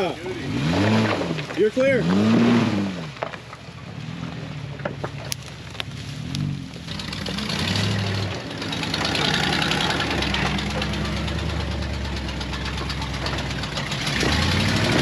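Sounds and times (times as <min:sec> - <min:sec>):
off-road vehicle engine revving: 0:00.0 - 0:15.0.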